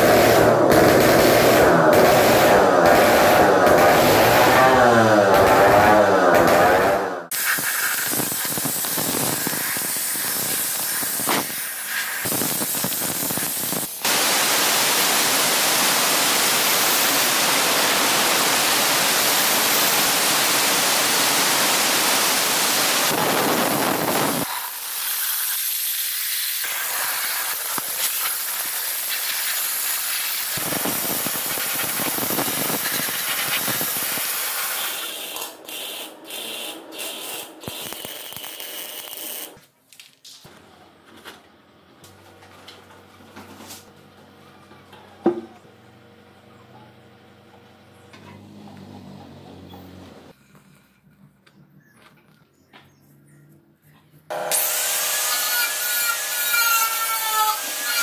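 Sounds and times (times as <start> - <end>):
steady spraying hiss: 7.4 - 35.2.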